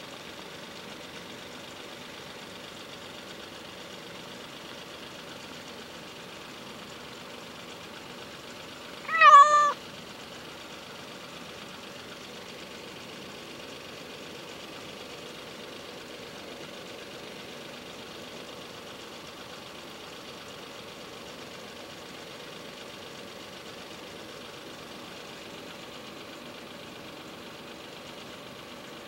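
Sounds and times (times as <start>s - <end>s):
cat meowing: 9.0s - 9.8s.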